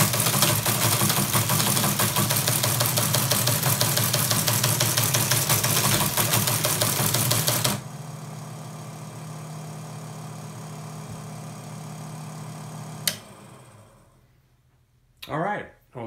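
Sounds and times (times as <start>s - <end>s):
teletype printing clatter: 0.0s - 7.8s
motor humming: 0.0s - 14.2s
machine switch click: 13.0s - 13.3s.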